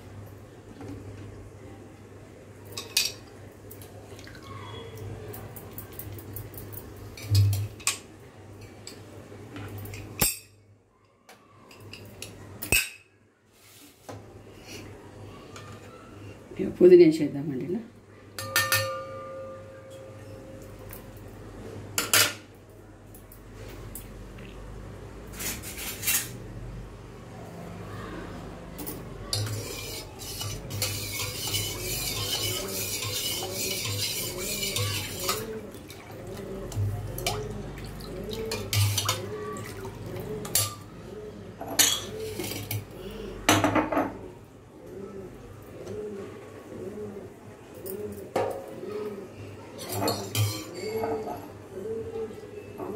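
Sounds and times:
spoon clinking against pot: 0:18.4 - 0:20.4, 0:29.3 - 0:35.6, 0:38.4 - 0:39.2, 0:49.9 - 0:51.1.

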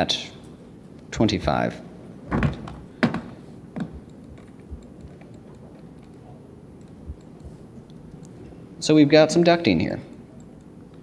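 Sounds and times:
mouse and keyboard clicks: 0:03.8 - 0:06.2.

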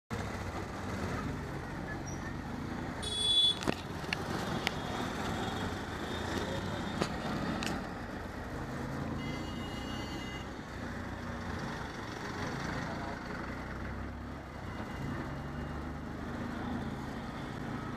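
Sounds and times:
road traffic rumble: 0:00.1 - 0:17.9
vehicle horn: 0:03.0 - 0:03.7, 0:09.2 - 0:10.5.

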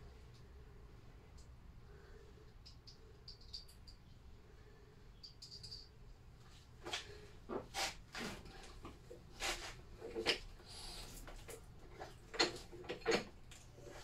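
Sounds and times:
clicks and clunks of hand tools: 0:11.3 - 0:13.6.

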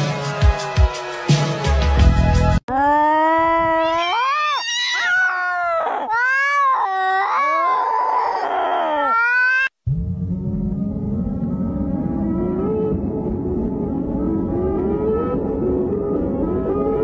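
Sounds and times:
cat yowling: 0:03.2 - 0:09.8.

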